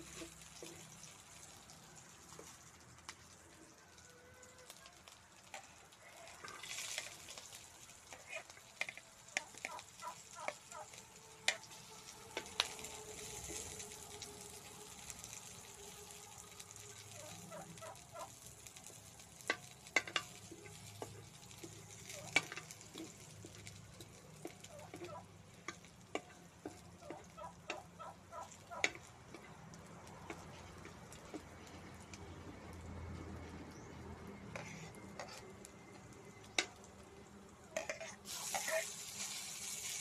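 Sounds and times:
metal spatula scraping wok: 0.0 - 0.9, 6.4 - 7.4, 8.1 - 9.6, 10.9 - 15.7, 34.4 - 35.6, 37.8 - 40.0
meat sizzling in hot oil: 0.0 - 32.1, 37.7 - 40.0.

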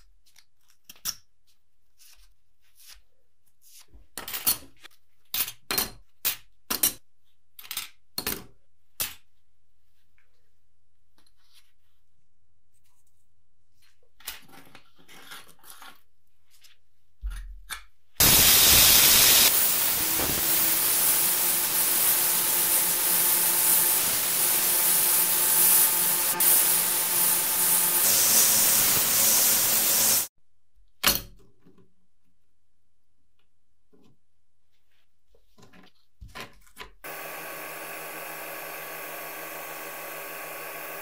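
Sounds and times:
sandblaster hissing: 18.2 - 30.3, 37.1 - 41.0.

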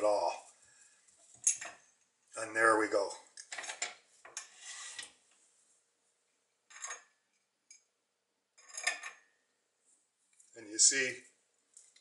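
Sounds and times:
metal clinks and scrapes: 1.2 - 1.9, 6.7 - 7.8, 8.6 - 9.3.

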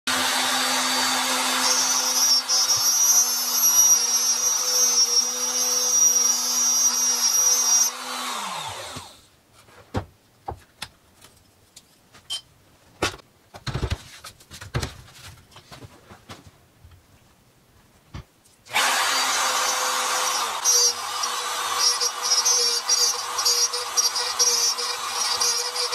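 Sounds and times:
router cutting wood: 0.1 - 9.2, 18.7 - 25.9.

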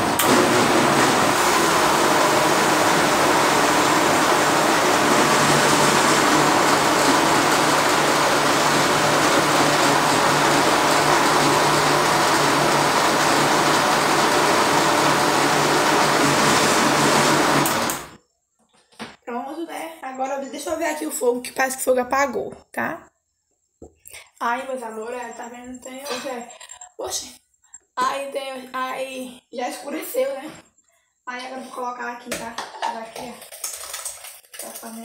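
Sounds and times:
blender running: 0.0 - 18.2.

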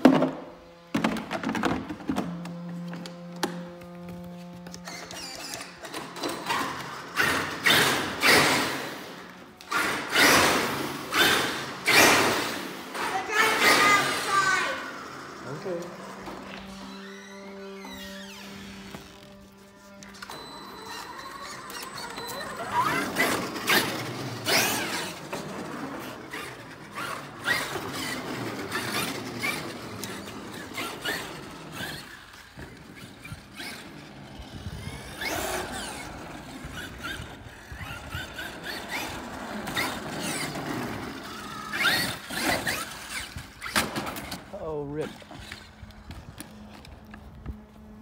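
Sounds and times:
electric motor whining: 0.5 - 48.0.

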